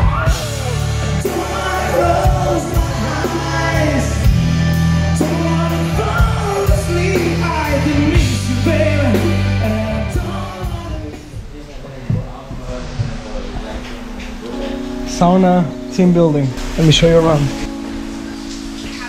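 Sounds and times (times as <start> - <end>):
pop song with singing: 0.0 - 19.0.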